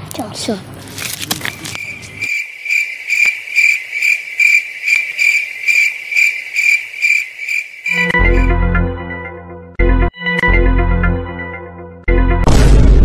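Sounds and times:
cricket chirping: 1.7s - 8.5s.

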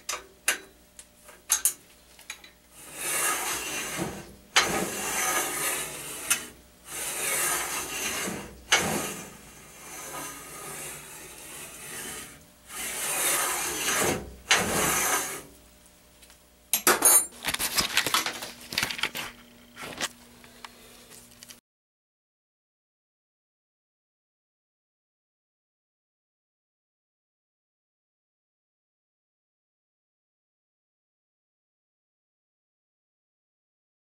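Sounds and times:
metal sliding on metal: 2.8s - 15.5s.

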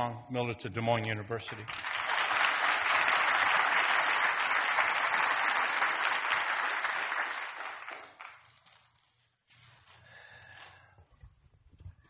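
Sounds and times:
audience applauding: 1.3s - 8.6s.

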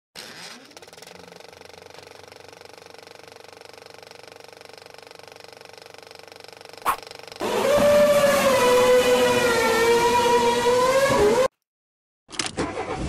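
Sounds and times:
film projector clatter: 0.2s - 7.4s.

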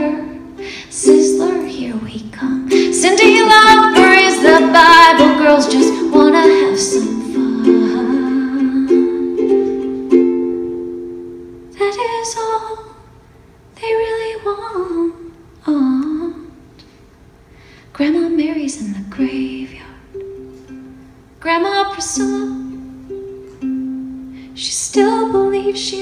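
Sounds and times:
woman singing: 0.0s - 9.5s, 11.7s - 13.1s, 13.8s - 16.7s, 17.9s - 20.1s, 21.4s - 22.9s, 24.6s - 26.0s
ukulele strumming: 0.0s - 12.2s, 20.1s - 26.0s.

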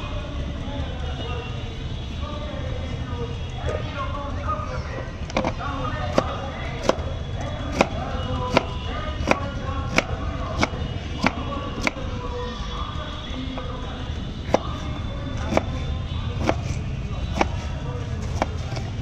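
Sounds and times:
voices: 0.0s - 19.0s
knife chopping on wooden board: 5.4s - 7.0s, 7.7s - 12.0s, 15.4s - 15.7s, 16.4s - 17.7s, 18.3s - 18.9s.

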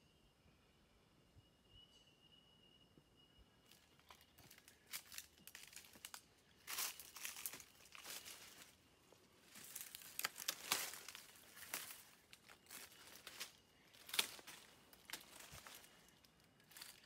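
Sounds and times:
dry leaves crunching underfoot: 3.7s - 8.8s, 9.4s - 17.0s.

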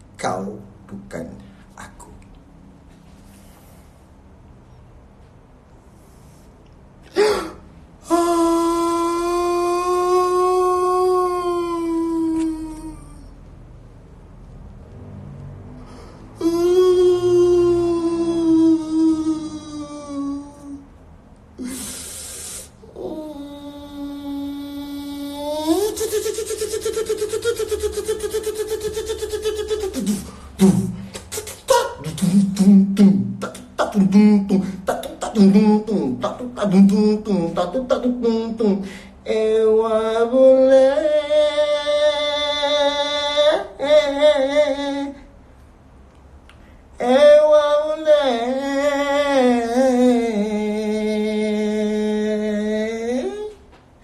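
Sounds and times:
man making mouth sounds: 0.0s - 2.7s, 6.6s - 13.5s, 16.4s - 20.9s, 21.6s - 45.2s, 46.4s - 53.8s
man singing long note: 31.7s - 45.2s.

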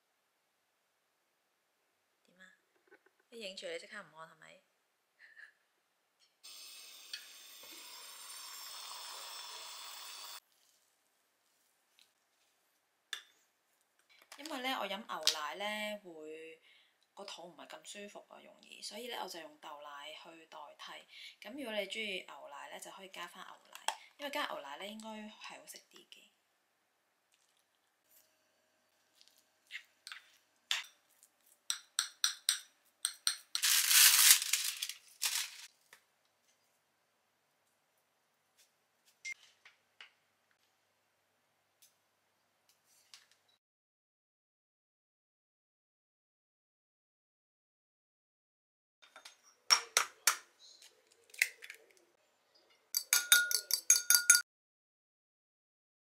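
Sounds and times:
rustling noise: 33.6s - 36.6s
kitchenware clicking: 53.0s - 54.4s
utensil clinking against bowl: 53.0s - 54.4s.

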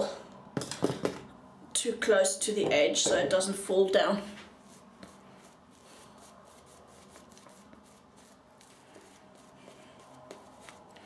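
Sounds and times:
shaving brush swishing lather: 4.5s - 11.0s.

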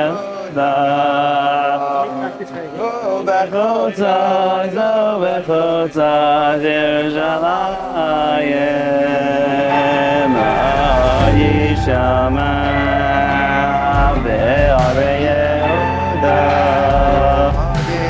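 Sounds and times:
men singing a chant-like melody: 0.0s - 18.0s
low rumble: 7.4s - 15.5s.

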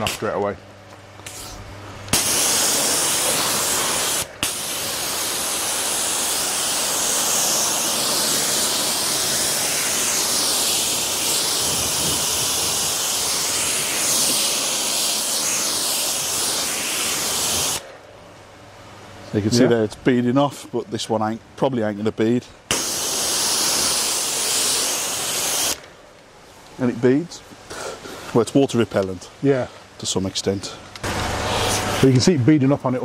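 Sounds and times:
pressure washer spraying water: 1.2s - 17.9s, 22.7s - 25.8s, 31.0s - 32.2s.

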